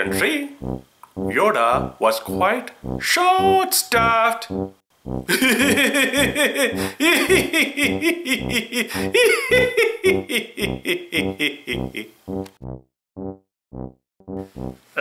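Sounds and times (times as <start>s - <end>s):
steady low beat: 0.1s - 10.8s, 11.8s - 14.8s
people laughing: 5.3s - 12.1s.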